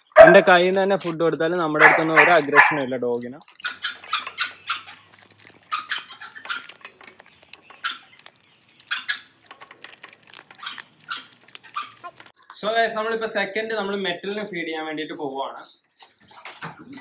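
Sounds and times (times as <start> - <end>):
dog crunching bones: 1.8 - 12.4.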